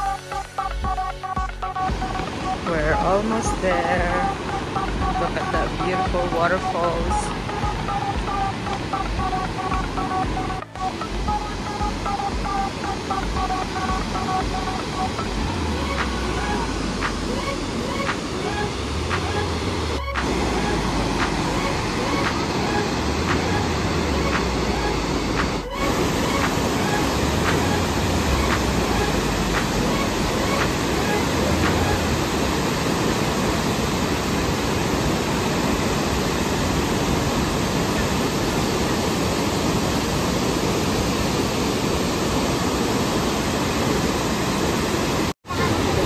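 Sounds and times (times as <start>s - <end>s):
waterfall rushing: 1.6s - 46.0s.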